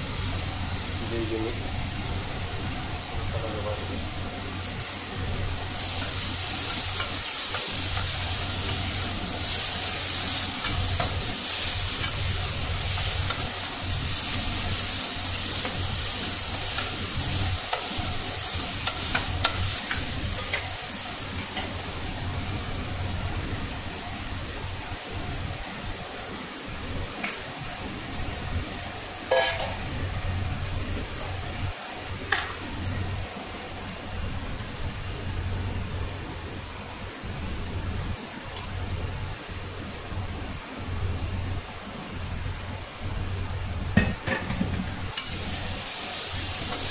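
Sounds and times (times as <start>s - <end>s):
vegetables sizzling in a pan: 0.0s - 46.9s
metal spoon scraping a pan: 29.3s - 29.8s.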